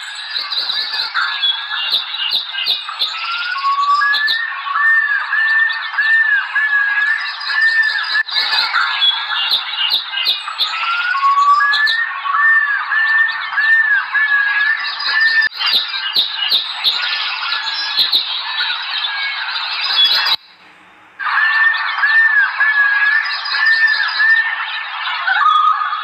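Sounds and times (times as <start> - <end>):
many birds chirping and squawking: 0.0 - 26.0.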